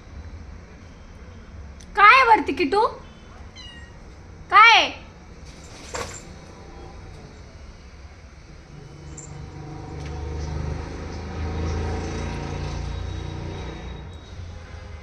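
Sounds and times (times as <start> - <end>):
motor vehicle rumble: 3.0 - 15.0.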